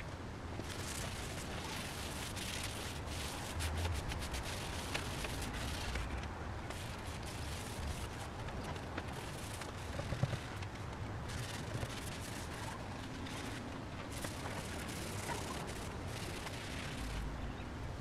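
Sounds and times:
background rumble and hiss: 0:00.0 - 0:18.0.

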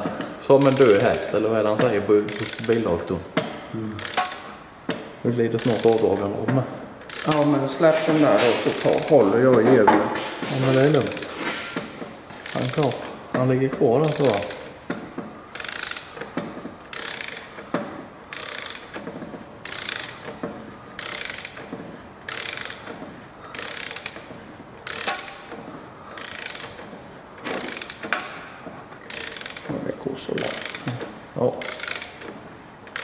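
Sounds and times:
ratchet wrench clicking: 0:00.5 - 0:05.0, 0:05.6 - 0:06.3, 0:07.0 - 0:07.7, 0:08.5 - 0:09.4, 0:10.7 - 0:13.2, 0:14.0 - 0:14.7, 0:15.5 - 0:16.3, 0:16.9 - 0:17.7, 0:18.3 - 0:19.0, 0:19.6 - 0:20.4, 0:21.0 - 0:21.7, 0:22.3 - 0:26.8, 0:27.4 - 0:28.4, 0:29.0 - 0:29.8, 0:30.4 - 0:33.0.

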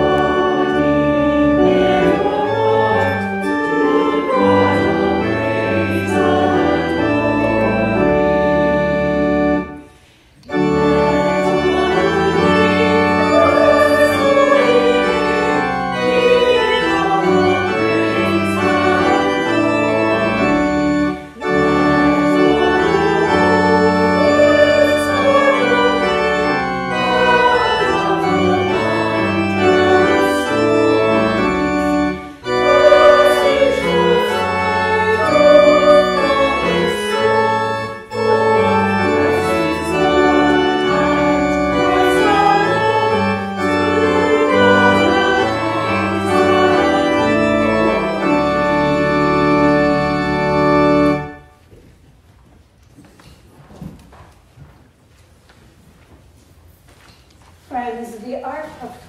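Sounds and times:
church organ playing held chords: 0:00.0 - 0:51.7.

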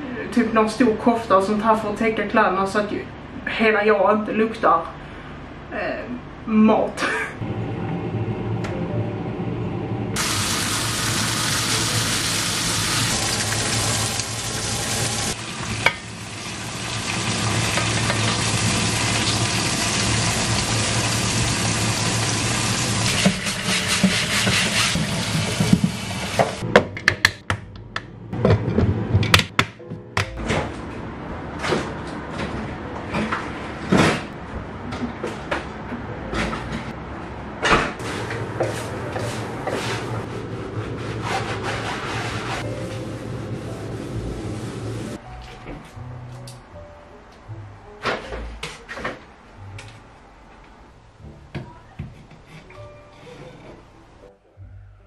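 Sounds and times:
sausage sizzling in a frying pan: 0:10.2 - 0:23.3
dishes and utensils clattering: 0:52.1 - 0:53.9.

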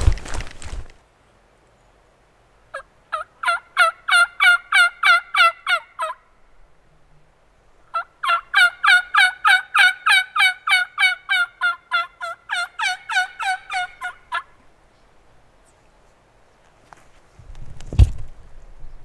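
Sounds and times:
turkey call hen yelps: 0:02.7 - 0:06.2, 0:07.9 - 0:14.6.

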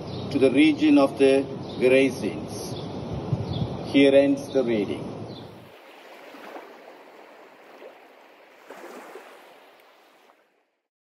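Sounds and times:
sea waves washing: 0:05.5 - 0:10.7.

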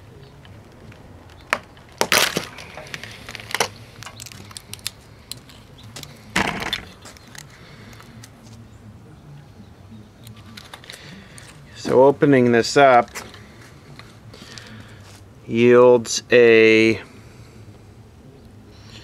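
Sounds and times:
sharp plastic clicks and snaps: 0:00.4 - 0:06.1
plastic bulb base cracking open: 0:01.2 - 0:08.4.

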